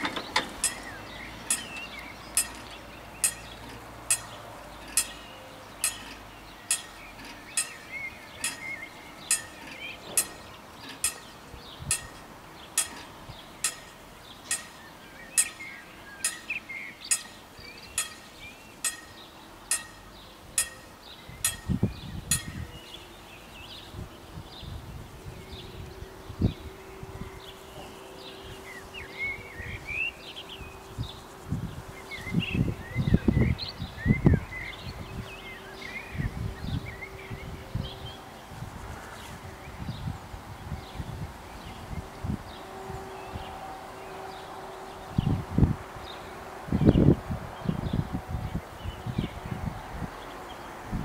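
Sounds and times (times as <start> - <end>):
level crossing warning bell: 0.0 - 23.5
birds chirping: 0.0 - 45.4.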